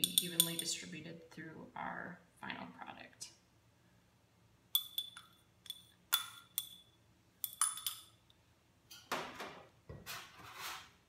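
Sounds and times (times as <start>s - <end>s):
metal stirrer clinking on glass: 0.0s - 0.8s, 4.8s - 8.1s.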